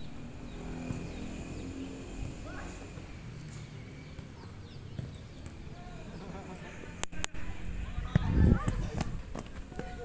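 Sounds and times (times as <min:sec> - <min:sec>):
faint players' voices: 0:04.0 - 0:10.0.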